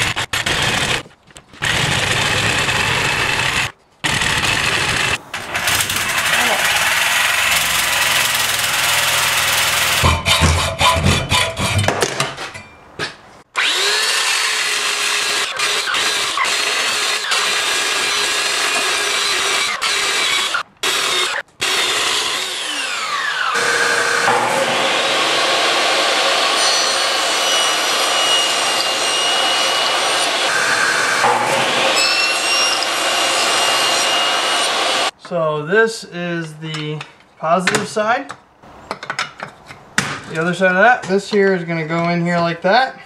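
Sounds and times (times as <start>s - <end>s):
table saw cutting wood: 0.0s - 11.8s, 13.6s - 35.2s
hacksaw cutting copper: 0.0s - 12.1s, 13.6s - 35.1s
belt sander on copper: 1.6s - 11.0s, 13.6s - 35.1s.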